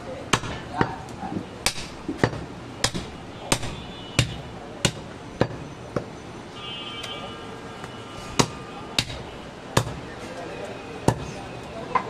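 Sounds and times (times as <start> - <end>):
cleaver chopping on wooden block: 1.6 - 6.1, 8.4 - 9.2, 9.8 - 10.0.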